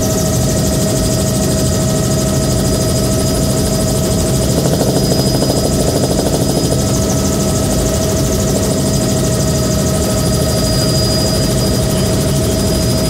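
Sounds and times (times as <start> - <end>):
helicopter engine high whine: 0.0 - 13.0
rotor rumble: 4.0 - 8.8.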